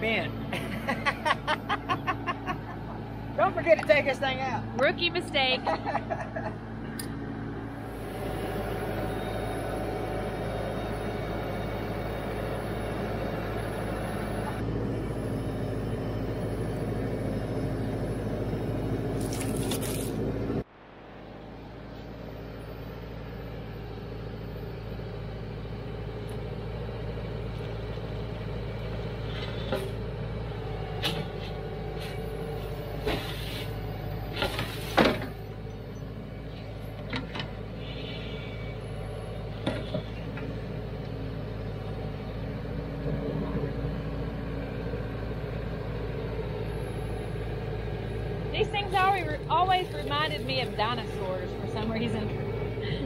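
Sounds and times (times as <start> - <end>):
tractor diesel engine running: 0.0 - 53.0
backhoe bucket clanks and scrapes: 33.0 - 35.4.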